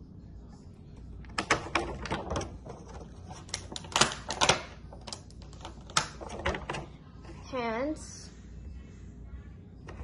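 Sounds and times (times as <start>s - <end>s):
plastic pieces clicking and clacking: 1.3s - 6.8s.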